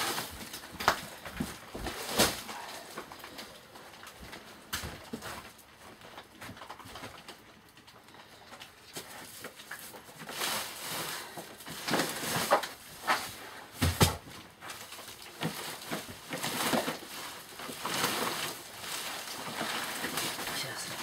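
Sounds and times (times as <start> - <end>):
sacks rustling and scraping: 0.0 - 21.0.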